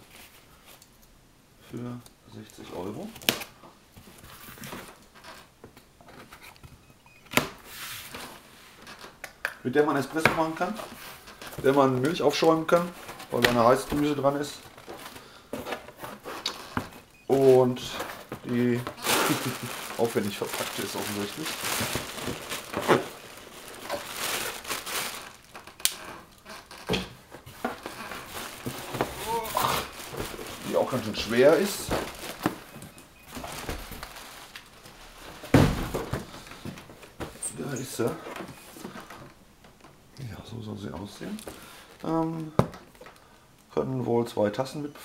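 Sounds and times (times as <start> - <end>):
plastic packing bags crinkling: 10.0 - 39.3
cardboard box rustling: 17.7 - 25.5, 27.4 - 32.7.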